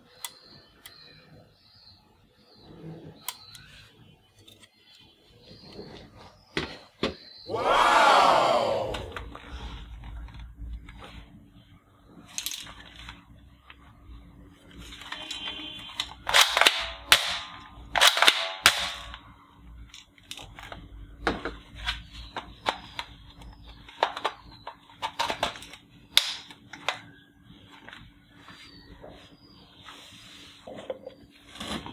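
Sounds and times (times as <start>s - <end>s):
plastic toy rifle clicks and snaps: 15.3s - 19.2s, 25.0s - 27.0s.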